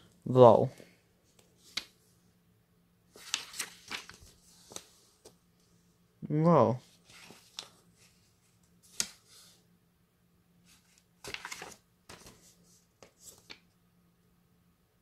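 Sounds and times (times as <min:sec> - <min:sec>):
paper pages rustling: 0:01.3 - 0:02.1, 0:03.1 - 0:05.4, 0:06.8 - 0:09.6, 0:10.7 - 0:13.7.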